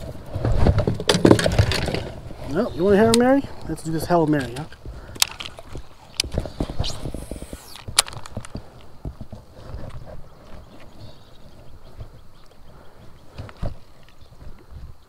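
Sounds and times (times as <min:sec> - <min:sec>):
brief hiss: 0:06.5 - 0:07.9.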